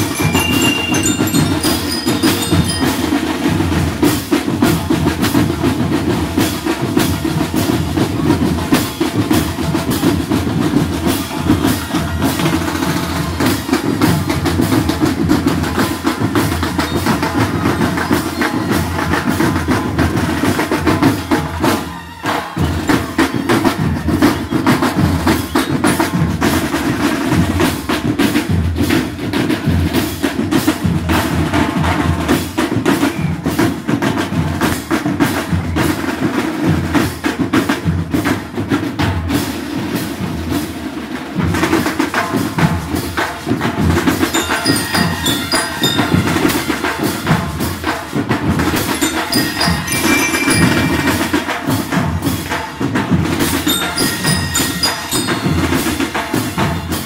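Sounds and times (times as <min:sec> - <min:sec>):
bell lyres ringing: 0:00.0 - 0:04.3, 0:44.2 - 0:57.0
marching drum line: 0:00.0 - 0:57.0.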